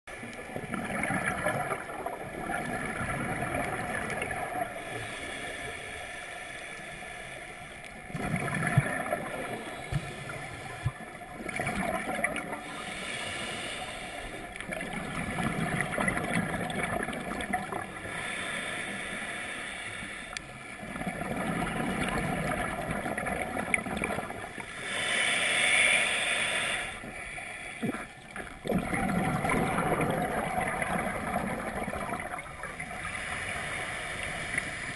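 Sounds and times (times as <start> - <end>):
exhaled bubbles gurgling underwater: 0.1 - 6.6, 7.6 - 19.3, 20.3 - 34.9
regulator breathing: 24.5 - 28.6.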